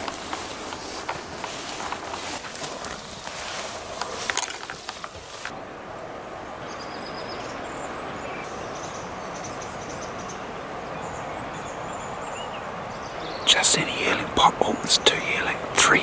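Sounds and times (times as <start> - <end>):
footsteps through vegetation: 0.0 - 5.5
crackling of brushed vegetation: 0.0 - 16.0
steady outdoor hiss: 0.0 - 16.0.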